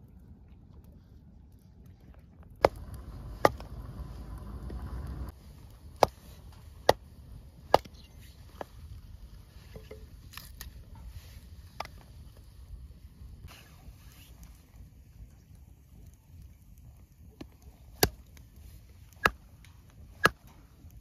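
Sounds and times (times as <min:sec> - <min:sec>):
hatchet chopping wood: 0:02.6 - 0:04.0, 0:07.7 - 0:07.9.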